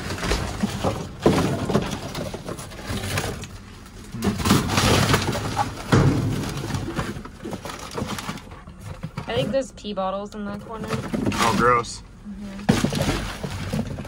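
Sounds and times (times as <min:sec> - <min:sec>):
cardboard and paper rustling: 0:00.0 - 0:14.0.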